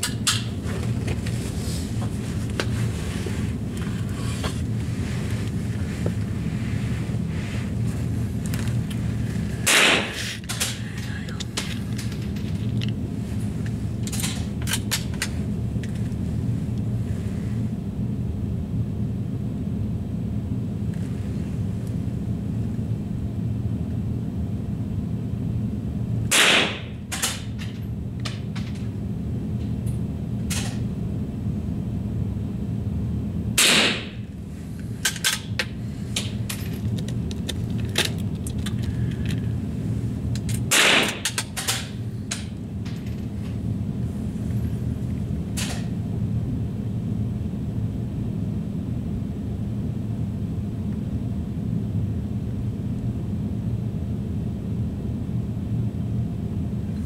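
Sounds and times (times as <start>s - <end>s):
low hum: 0.0s - 57.0s
rifle shots: 9.7s - 10.2s, 26.3s - 26.9s, 33.6s - 34.2s, 40.7s - 41.2s.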